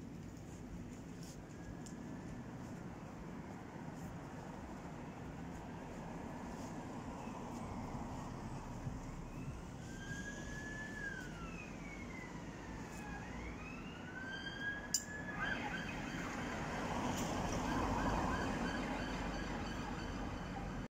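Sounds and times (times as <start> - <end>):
low urban rumble: 0.0 - 20.9
emergency vehicle siren wailing: 7.3 - 20.9.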